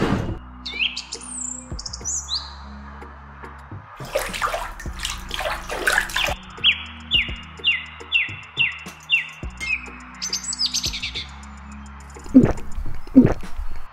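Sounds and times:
birds chirping: 0:00.5 - 0:02.8, 0:04.0 - 0:13.9
water sloshing and splashing: 0:04.0 - 0:06.4, 0:12.2 - 0:13.9.

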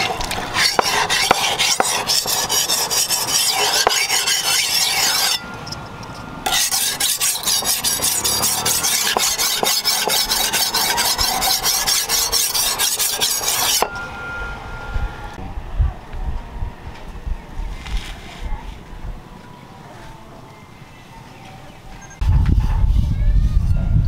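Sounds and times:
blade scraping on whetstone: 0:00.0 - 0:05.6, 0:06.4 - 0:14.0.

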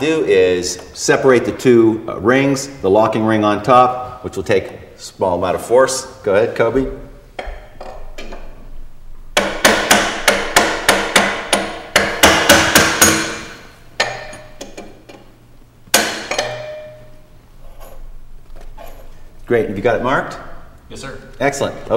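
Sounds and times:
hammer tapping on metal: 0:09.4 - 0:14.9, 0:15.9 - 0:17.1.

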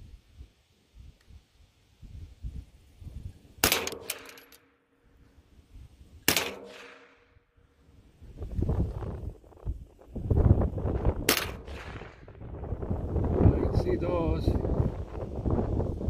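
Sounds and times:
rifle shots with ringing tail: 0:03.6 - 0:04.8, 0:06.2 - 0:07.4, 0:11.2 - 0:12.3.

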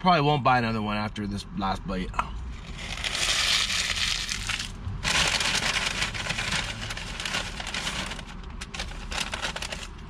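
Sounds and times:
paper wrapper being crumpled: 0:02.6 - 0:10.0.

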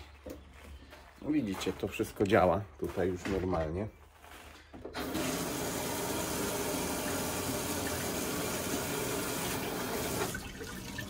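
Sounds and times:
water running from tap: 0:05.0 - 0:11.0.

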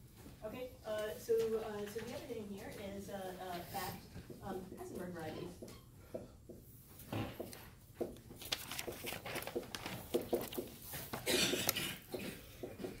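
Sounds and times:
marker scratching on a whiteboard: 0:03.6 - 0:11.2.

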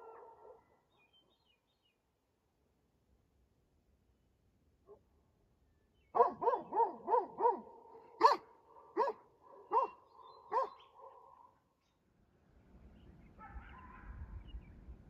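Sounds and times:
dog barking: 0:00.0 - 0:00.7, 0:06.2 - 0:11.5, 0:13.4 - 0:14.2.

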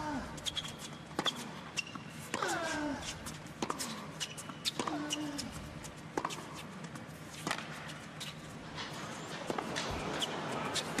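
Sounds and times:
tennis balls struck by rackets: 0:01.1 - 0:02.8, 0:03.5 - 0:05.4, 0:06.1 - 0:08.0, 0:08.6 - 0:11.0.

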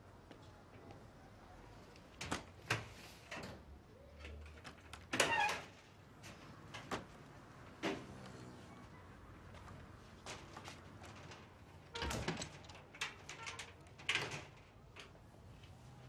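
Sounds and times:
door squeak: 0:05.2 - 0:05.7, 0:11.9 - 0:12.5
glass door clacking and knocking: 0:11.2 - 0:15.0.

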